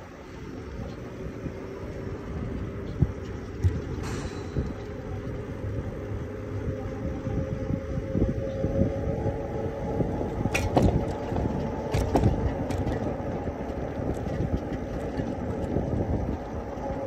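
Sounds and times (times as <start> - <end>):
wind on microphone: 0.0 - 17.0
tyres rolling on concrete: 9.9 - 17.0.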